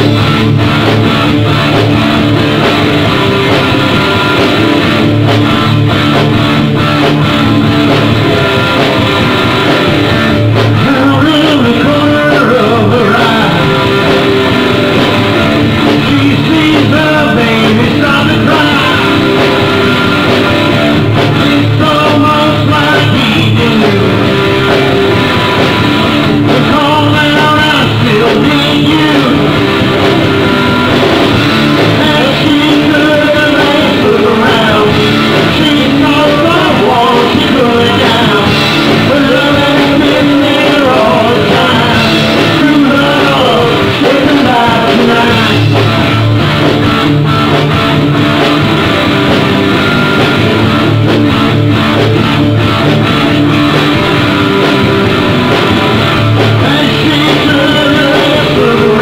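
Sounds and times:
bass guitar: 0.0s - 59.0s
electric guitars: 0.0s - 59.0s
person singing: 10.6s - 14.4s, 15.0s - 20.3s, 21.0s - 24.8s, 26.1s - 30.6s, 31.6s - 46.0s, 55.1s - 59.0s.

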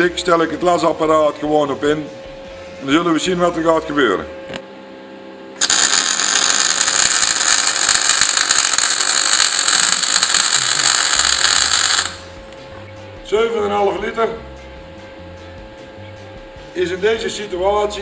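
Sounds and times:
welding arc crackling: 5.6s - 12.4s.

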